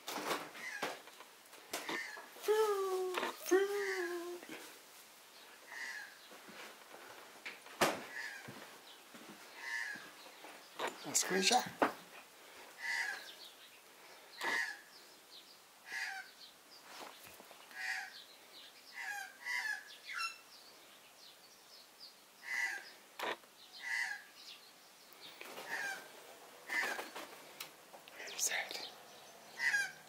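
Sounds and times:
magpie harsh calls: 12.8s - 13.3s, 15.9s - 16.3s, 19.0s - 20.4s, 22.4s - 22.9s, 23.8s - 24.3s, 29.6s - 30.0s.

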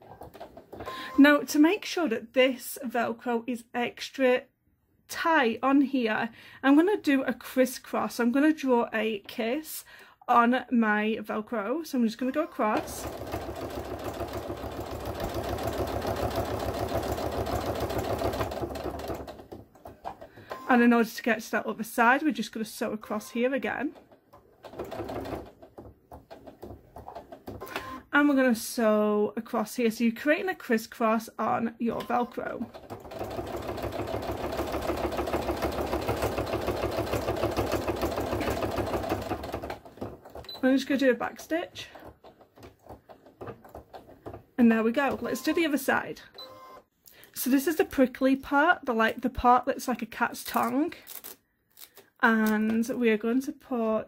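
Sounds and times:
electric sewing machine stitching: 12.5s - 20.7s, 24.0s - 28.0s, 32.4s - 40.8s.

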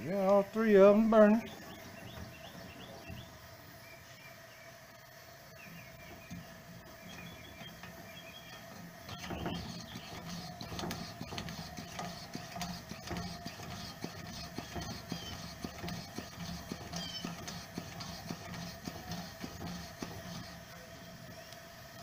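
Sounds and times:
pump plunger strokes: 5.9s - 22.0s.

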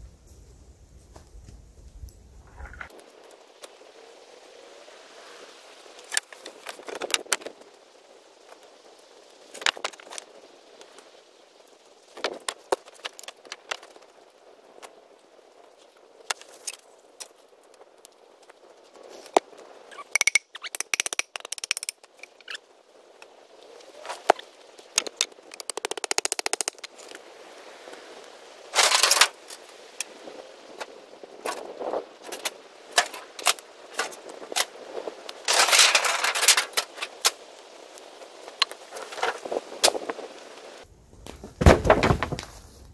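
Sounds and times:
campfire crackling: 0.7s - 42.9s
wooden boards clattering: 41.3s - 42.6s.

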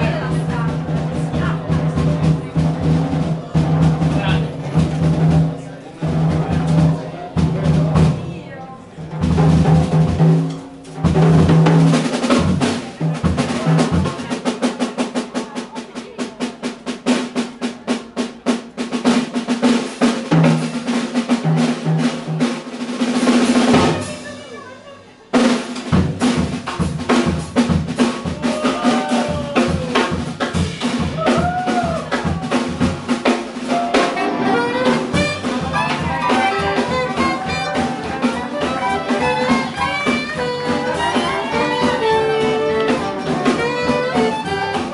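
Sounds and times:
jazz drum solo: 0.0s - 44.9s
horns and band playing: 19.0s - 44.9s.

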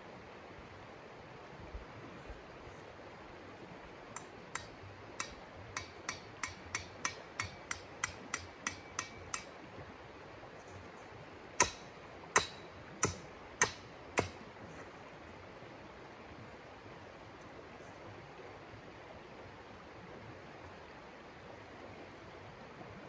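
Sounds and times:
mallet striking tent stake: 4.2s - 9.6s, 11.6s - 14.4s.

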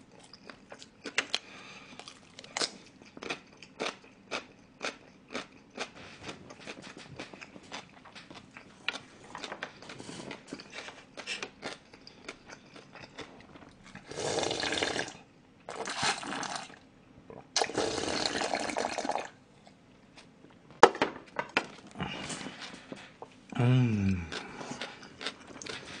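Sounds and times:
chewing with wet clicks: 0.1s - 14.0s, 24.3s - 25.8s
slurping broth: 14.0s - 16.8s, 17.6s - 19.3s.

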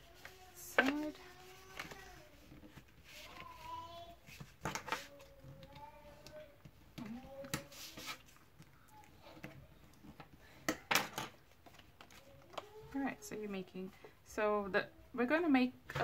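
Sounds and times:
paper rustles: 0.0s - 9.5s.

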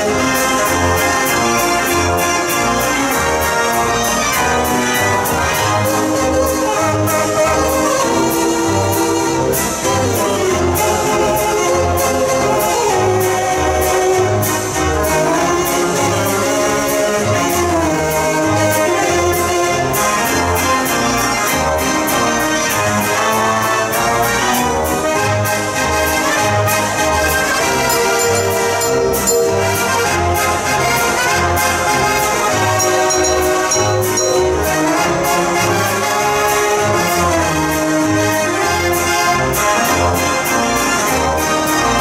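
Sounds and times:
dance organ playing tune: 27.6s - 30.6s, 32.4s - 35.4s.

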